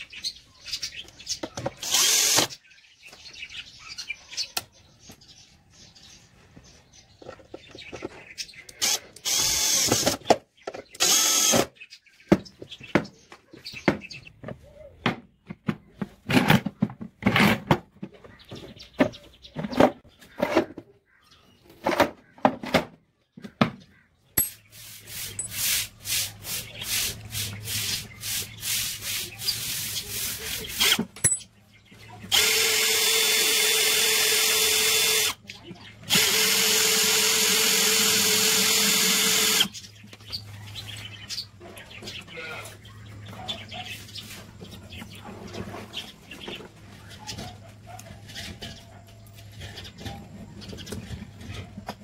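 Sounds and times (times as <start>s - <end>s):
cordless drill drilling metal: 1.8s - 2.5s, 8.8s - 10.2s, 11.0s - 11.7s, 30.7s - 31.0s, 32.3s - 35.4s, 36.1s - 39.7s.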